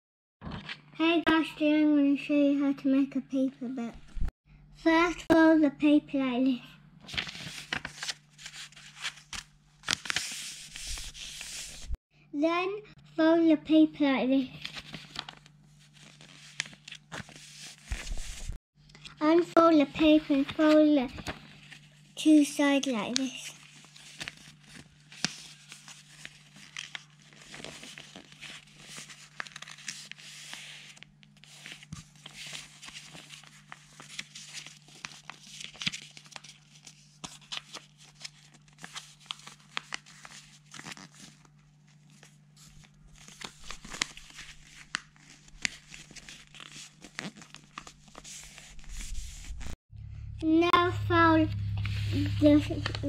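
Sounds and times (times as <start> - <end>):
paper creases crackling: 7.1 - 12.0, 14.6 - 49.8, 51.6 - 53.0
paper rustling and crinkling: 7.1 - 12.0, 14.6 - 19.4, 20.0 - 49.8, 51.8 - 53.0.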